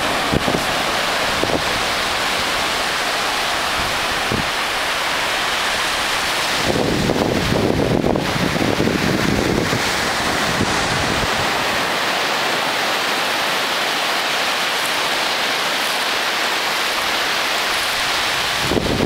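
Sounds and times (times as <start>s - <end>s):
wind buffeting microphone: 0.0s - 13.0s, 17.7s - 19.0s
waves breaking on beach: 0.0s - 19.0s.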